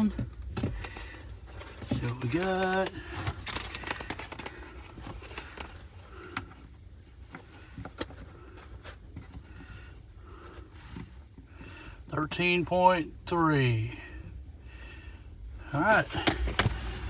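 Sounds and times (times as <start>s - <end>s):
light clicks and rustles of wires: 0.0s - 9.6s
low steady hum: 0.0s - 17.0s.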